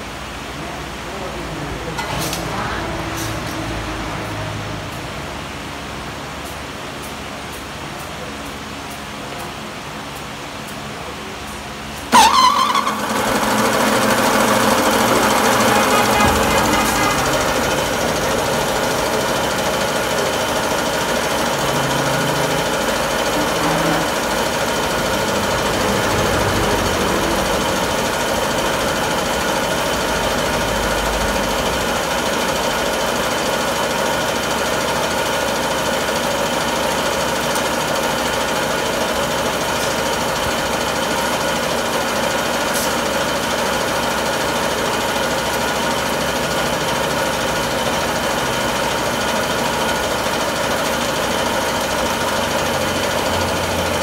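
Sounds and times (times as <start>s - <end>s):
machine motor drone: 12.0s - 54.0s.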